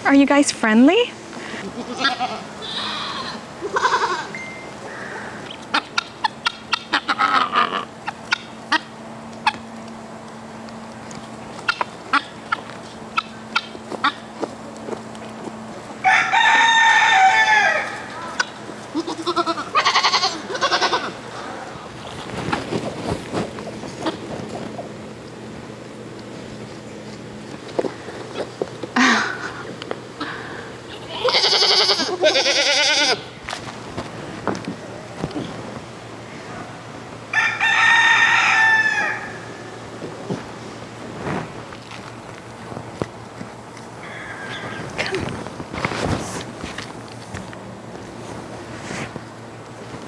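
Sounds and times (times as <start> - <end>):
chickens clucking: 1.4 - 9.8, 11.2 - 16.2
goat bleating: 1.6 - 4.4, 18.2 - 21.3, 30.9 - 33.3
rooster crowing: 16.0 - 18.4, 37.3 - 39.8, 44.0 - 44.9.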